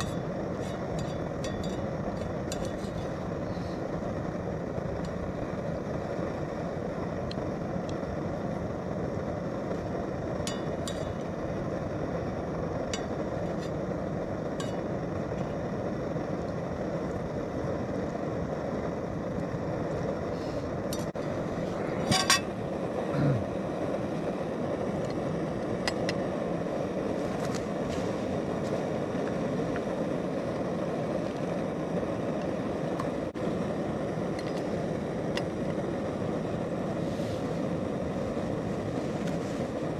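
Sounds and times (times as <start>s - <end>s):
stove burner rushing: 0.0s - 39.9s
fork clinking on metal pan: 22.1s - 22.5s.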